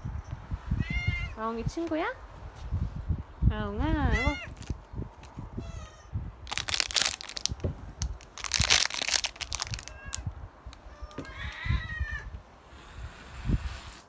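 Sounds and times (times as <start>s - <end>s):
cat meowing: 0.8s - 1.4s, 4.0s - 4.6s, 5.6s - 6.2s, 9.6s - 12.4s
plastic crinkling: 4.5s - 5.4s, 6.4s - 11.3s.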